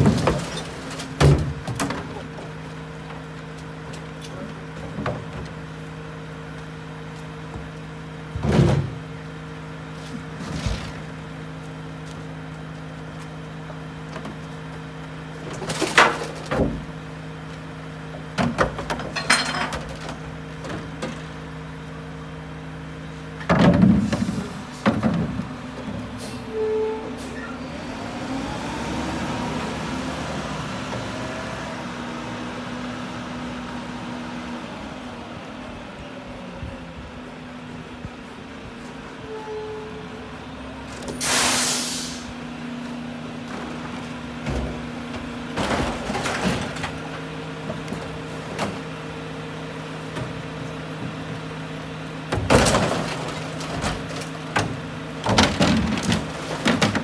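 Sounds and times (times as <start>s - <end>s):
bins banging and clattering: 0.0s - 2.6s, 4.3s - 5.6s, 8.2s - 9.1s, 15.4s - 17.0s, 18.2s - 21.4s, 23.4s - 26.3s, 43.4s - 49.1s, 50.0s - 51.5s, 52.2s - 57.0s
garbage truck engine humming: 0.0s - 57.0s.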